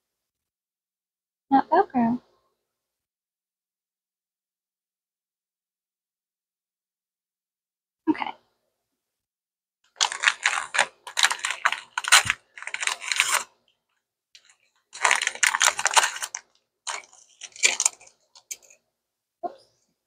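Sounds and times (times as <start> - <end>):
paper wrapper rustling: 10.0 - 13.6, 14.4 - 18.8.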